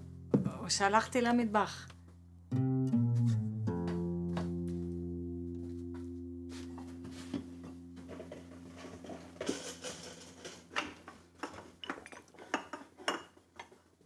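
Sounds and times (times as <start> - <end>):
plucked string chord: 2.5 - 11.4
dishes and cutlery clinking: 6.8 - 13.8.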